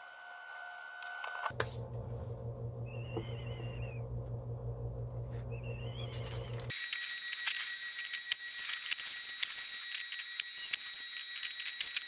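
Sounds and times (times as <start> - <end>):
low machine hum: 1.5 - 6.7.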